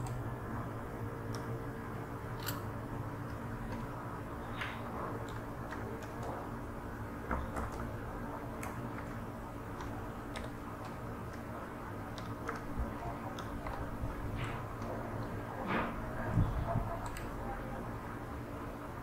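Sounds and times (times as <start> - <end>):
low electrical hum: 0.0 - 19.0
keyboard keys clicking: 8.5 - 15.4.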